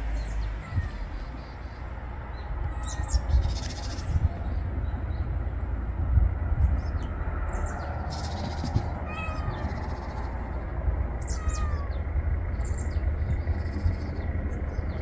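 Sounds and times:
steady low rumble: 0.0s - 15.0s
cat meowing: 0.6s - 1.1s, 2.6s - 3.5s, 9.0s - 10.2s, 11.2s - 12.0s.

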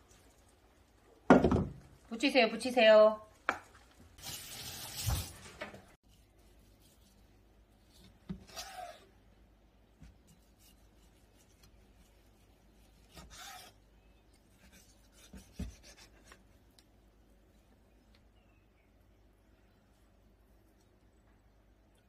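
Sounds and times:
knife slicing through fish: 12.9s - 13.8s.

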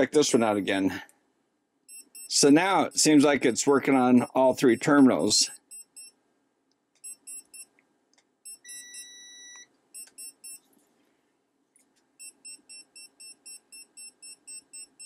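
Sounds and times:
voltage detector beeping: 1.9s - 3.2s, 4.7s - 6.1s, 7.0s - 7.7s, 8.5s - 10.6s, 12.2s - 15.0s.

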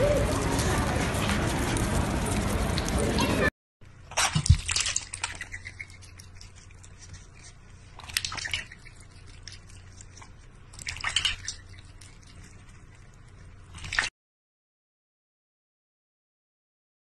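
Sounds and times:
water splashing in metal bowl: 4.1s - 6.5s, 8.0s - 9.0s, 10.7s - 12.0s, 13.7s - 14.1s.

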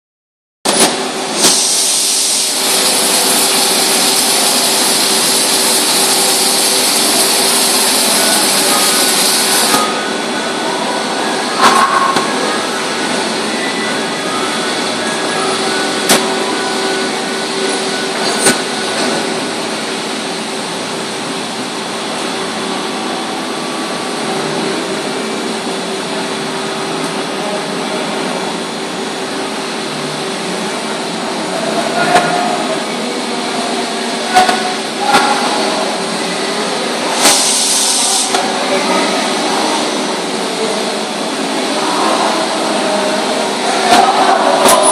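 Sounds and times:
machine mechanical hum: 0.7s - 44.9s
loud hiss: 0.8s - 10.6s, 34.2s - 38.6s.

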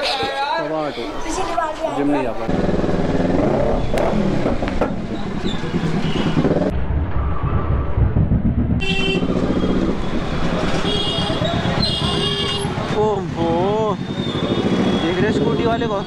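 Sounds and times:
motorcycle engine at low speed: 2.4s - 16.0s
vehicle horn tooting: 8.8s - 9.3s, 10.8s - 12.8s.

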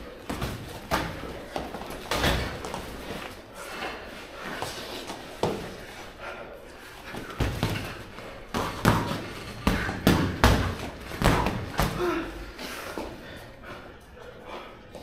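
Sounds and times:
boxing gloves punching thuds: 7.1s - 12.1s.

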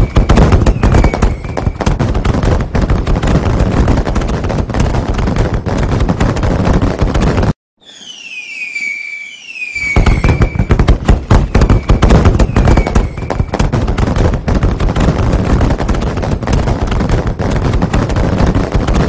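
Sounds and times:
falling firework whistles: 0.0s - 1.9s, 7.8s - 13.8s
fireworks crackling and banging: 0.0s - 19.0s.

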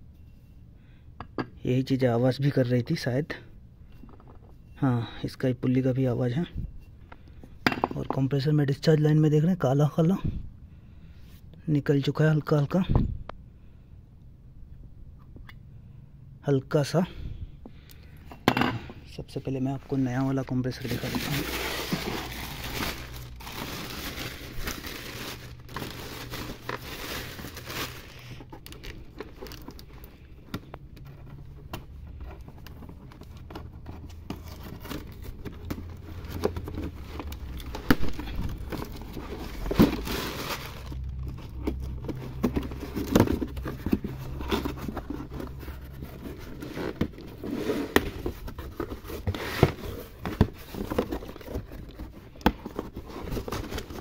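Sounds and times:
cardboard flaps crinkling and scraping: 19.7s - 30.3s, 31.0s - 54.0s.

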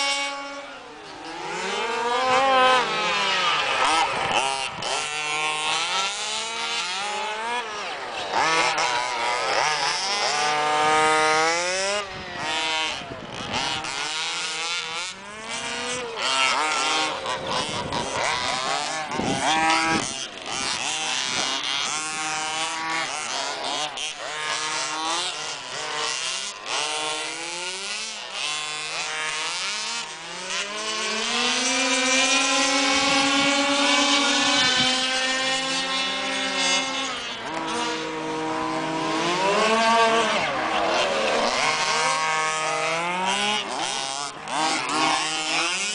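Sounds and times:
rc buggy engines buzzing: 0.0s - 45.9s.

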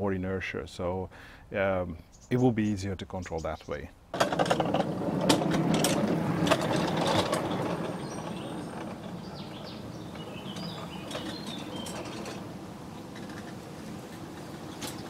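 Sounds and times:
birds chirping faintly: 0.0s - 4.1s, 6.2s - 15.0s
wheels clattering on steel rails: 4.1s - 15.0s.

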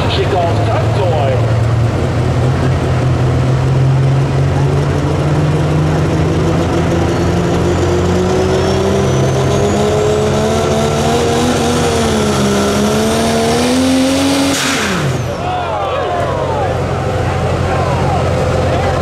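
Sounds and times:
diesel engine at full throttle: 0.0s - 19.0s
turbocharger whistle: 7.2s - 16.3s.

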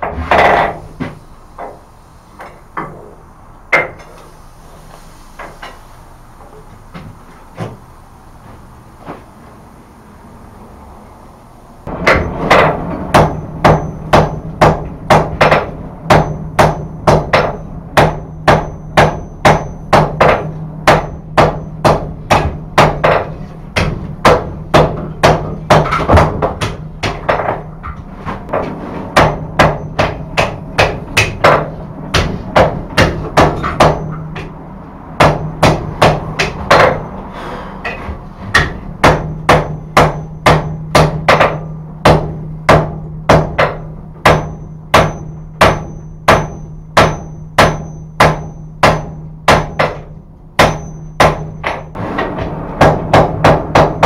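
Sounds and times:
steady low hum: 0.0s - 54.0s.

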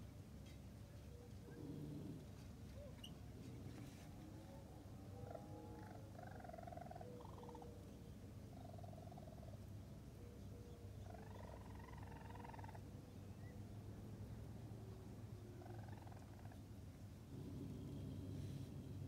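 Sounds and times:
faint low hum: 0.0s - 19.0s
raccoon kits chirping: 5.2s - 7.7s, 11.0s - 12.9s.

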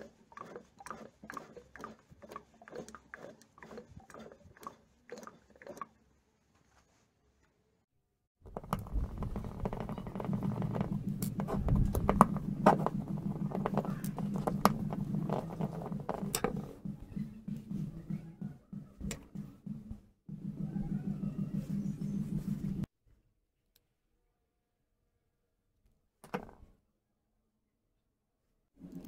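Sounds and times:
screwdriver clicks and scrapes: 8.5s - 16.7s
steady low hum: 8.8s - 22.9s.

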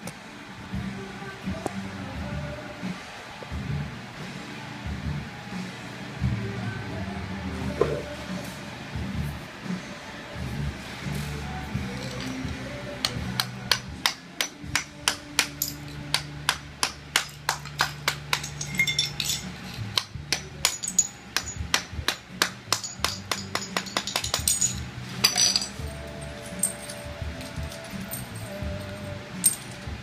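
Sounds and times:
hammer striking chisel: 13.0s - 25.7s.

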